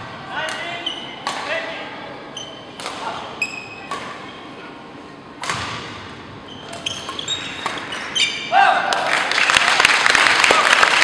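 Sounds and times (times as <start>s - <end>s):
racket hitting shuttlecock: 0.4s - 1.5s, 2.7s - 3.2s, 3.9s - 4.3s, 5.4s - 8.0s
shoes squeaking on wooden floor: 6.4s - 8.5s.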